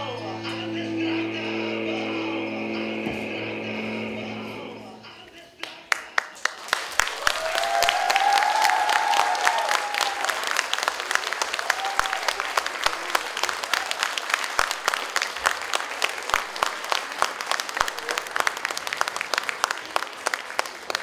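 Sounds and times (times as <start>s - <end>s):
audience applauding: 5.6s - 21.0s.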